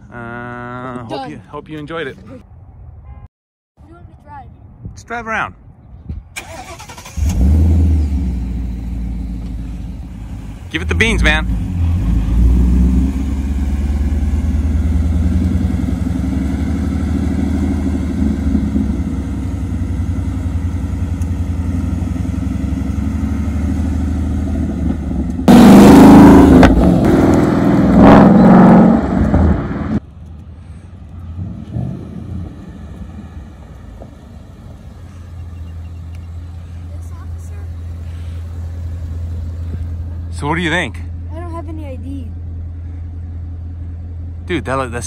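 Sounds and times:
car engine rumbling: 0:05.6 - 0:45.0
car engine hard acceleration: 0:06.5 - 0:30.0, 0:31.2 - 0:40.8.

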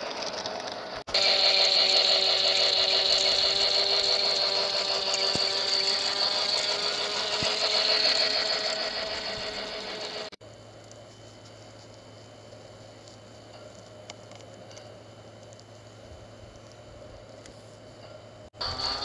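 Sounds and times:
toy train motor whirring: 0:00.0 - 0:10.4, 0:18.6 - 0:19.0.

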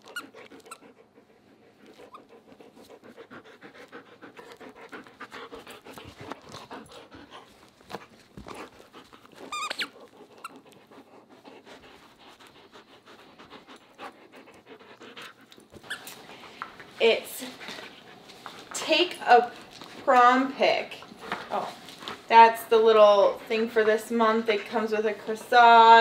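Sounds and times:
dog panting: 0:00.0 - 0:26.0
toy squeak: 0:09.5 - 0:10.0.

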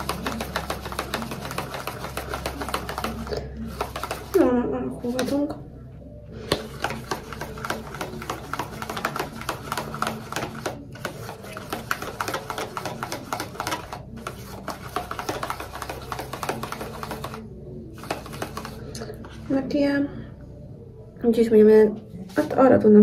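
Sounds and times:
utensil scraping plastic bowl: 0:00.0 - 0:05.4, 0:06.5 - 0:19.4.

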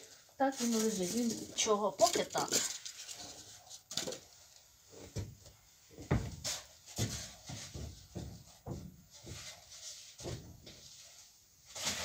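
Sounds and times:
footsteps on wooden floor: 0:04.9 - 0:10.8.

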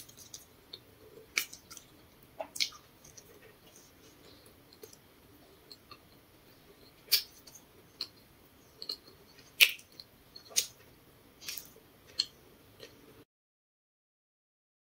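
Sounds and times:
mouth chewing wet clicks: 0:00.0 - 0:03.4.

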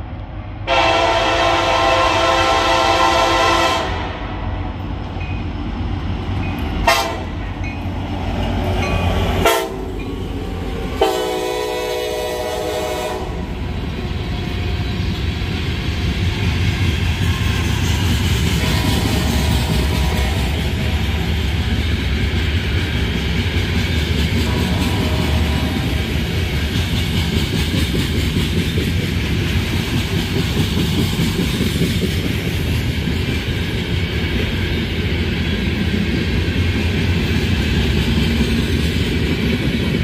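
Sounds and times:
train wheels rumbling on rails: 0:00.0 - 0:40.0
locomotive air horn: 0:00.7 - 0:04.3, 0:06.8 - 0:07.4, 0:09.4 - 0:09.9, 0:11.0 - 0:13.5, 0:18.6 - 0:21.0, 0:24.4 - 0:26.0.

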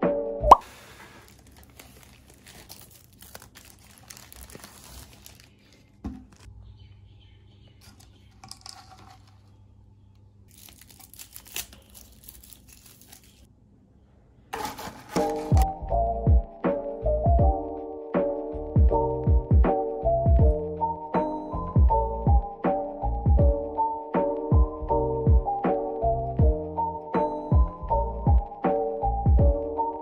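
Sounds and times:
plastic crinkling: 0:00.6 - 0:06.5, 0:07.8 - 0:09.6, 0:10.5 - 0:13.5, 0:14.6 - 0:15.6.

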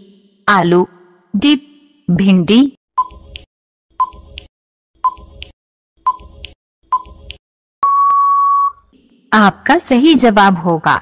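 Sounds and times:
long steady beep: 0:07.8 - 0:08.9.

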